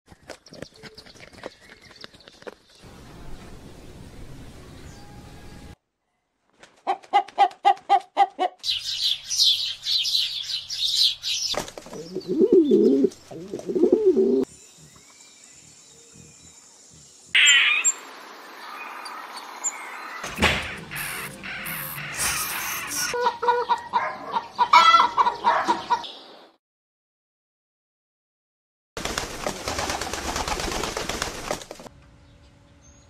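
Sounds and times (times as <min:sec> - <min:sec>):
high bird chirping: 0:08.6 - 0:13.0, 0:14.6 - 0:23.2
pigeons cooing: 0:11.9 - 0:15.0.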